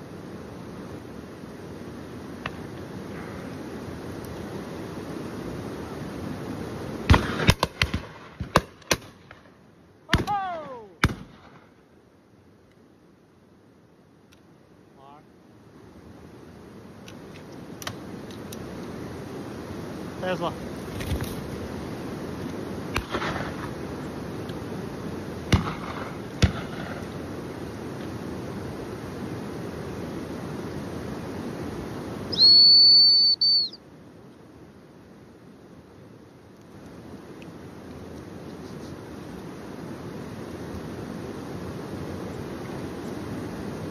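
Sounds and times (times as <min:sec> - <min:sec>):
background hiss: 0:00.0 - 0:43.9
shotgun shots: 0:07.1 - 0:09.1, 0:11.0 - 0:11.6, 0:23.0 - 0:23.6, 0:25.5 - 0:27.0.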